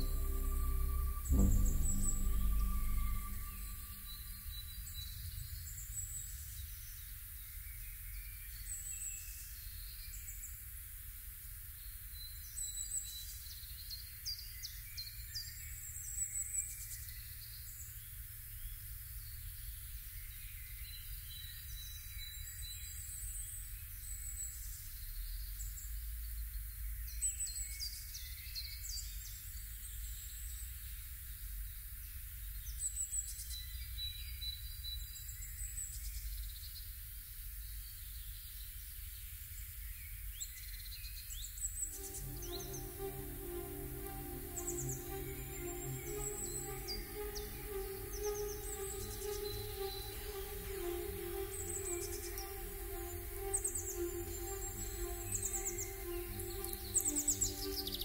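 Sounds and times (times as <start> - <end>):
low steady rumble: 0.0 - 5.0.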